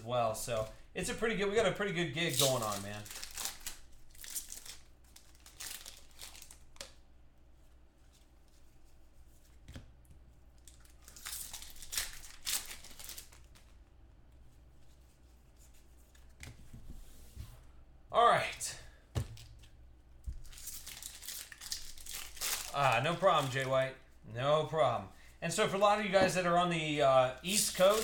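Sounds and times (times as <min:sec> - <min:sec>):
foil wrappers tearing and crinkling: 0:02.2 - 0:06.9, 0:10.7 - 0:13.7, 0:20.4 - 0:23.8, 0:27.4 - 0:28.0.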